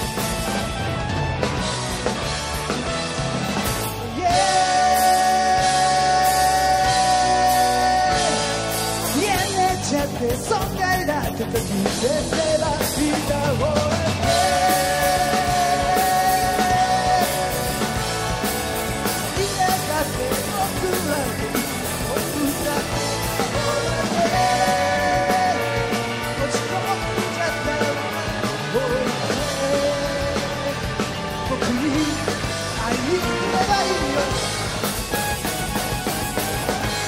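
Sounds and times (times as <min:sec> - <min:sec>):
live rock band playing: 0:00.0 - 0:37.0
person singing into microphone: 0:04.1 - 0:17.9, 0:19.3 - 0:34.5.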